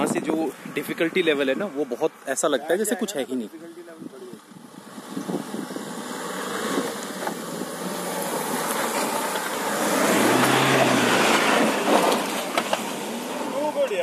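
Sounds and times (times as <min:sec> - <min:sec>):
tyres scrabbling in loose soil: 0:06.5 - 0:14.0.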